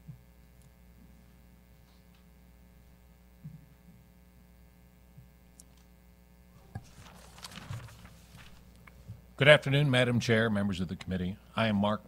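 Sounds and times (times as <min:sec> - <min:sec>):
electrical mains hum: 0:00.0 - 0:12.0
rustling: 0:06.6 - 0:08.9.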